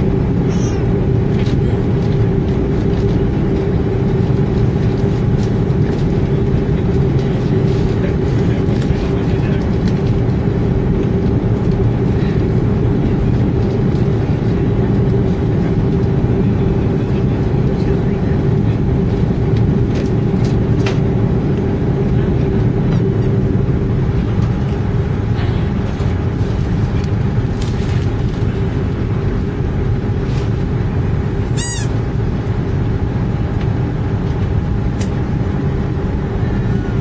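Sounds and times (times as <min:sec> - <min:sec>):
aircraft cabin drone: 0:00.0 - 0:37.0
short high squeak: 0:31.6 - 0:31.9.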